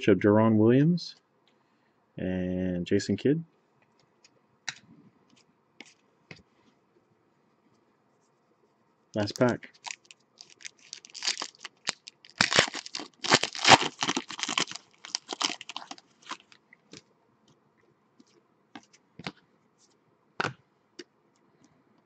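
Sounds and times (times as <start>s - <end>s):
wrapper tearing and crinkling: 9.7s - 16.6s.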